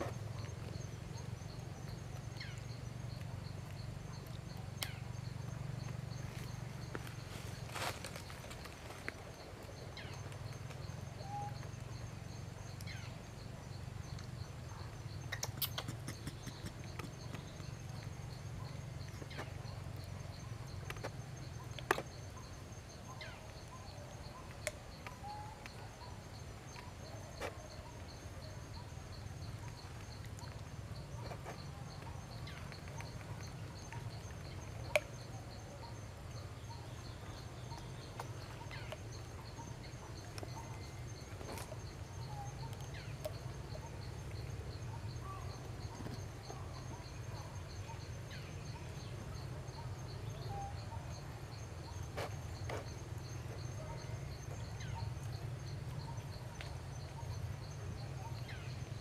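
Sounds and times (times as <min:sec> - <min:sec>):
insects trilling: 0:00.0 - 0:59.0
sharp clicks: 0:15.3 - 0:17.5.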